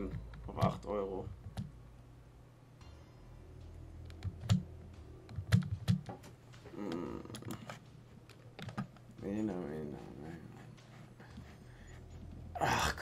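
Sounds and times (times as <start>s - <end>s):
keyboard and mouse clicks: 4.0s - 4.7s, 5.3s - 9.1s.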